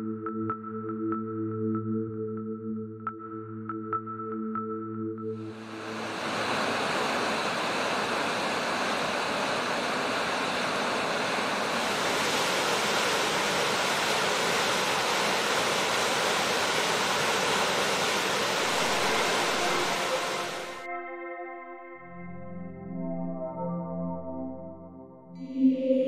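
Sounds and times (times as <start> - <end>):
water rushing through sluice: 5.8 - 20.8.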